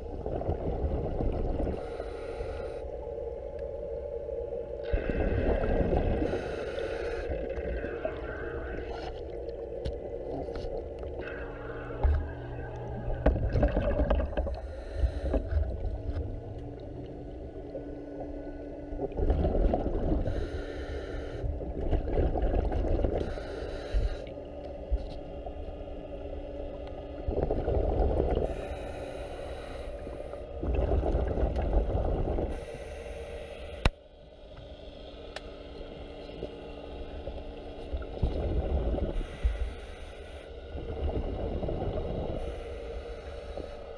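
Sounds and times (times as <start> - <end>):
exhaled bubbles rumbling underwater: 0.0 - 2.3, 3.0 - 33.6, 34.2 - 43.9
steady low hum: 0.0 - 43.9
hiss of inhaled breath: 1.7 - 2.9, 6.2 - 7.4, 14.6 - 15.5, 20.2 - 21.5, 23.2 - 24.3, 28.4 - 30.5, 32.5 - 33.9, 39.2 - 40.6, 42.4 - 43.9.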